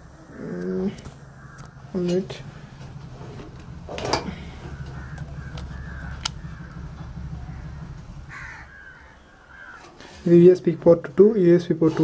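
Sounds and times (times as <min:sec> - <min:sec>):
steady low hum: 0:00.0 - 0:11.8
faint bird calls: 0:00.1 - 0:02.6, 0:04.2 - 0:10.2
sharp clicks: 0:04.9 - 0:07.1.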